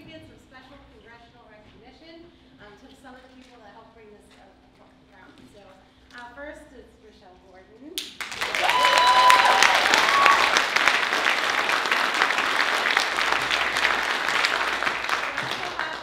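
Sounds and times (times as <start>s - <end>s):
audience applauding: 8.2s - 16.0s
short high cheer: 8.3s - 16.0s.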